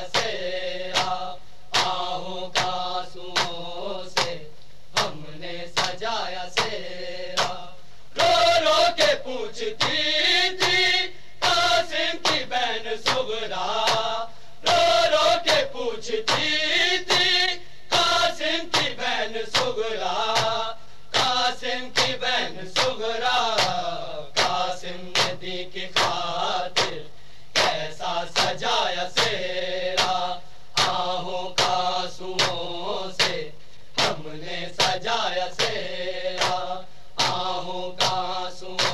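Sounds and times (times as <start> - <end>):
men reciting a lament in chorus: 0.0 - 38.9
chest-beating slaps: 0.1 - 2.0, 2.6 - 2.8, 3.4 - 3.6, 4.2 - 4.4, 5.8 - 6.0, 7.4 - 7.6, 10.6 - 11.6, 13.0 - 15.7, 16.3 - 16.5, 18.7 - 19.7, 20.3 - 21.4, 22.0 - 23.8, 25.2 - 26.2, 26.8 - 27.0, 32.4 - 32.6, 36.4 - 38.2.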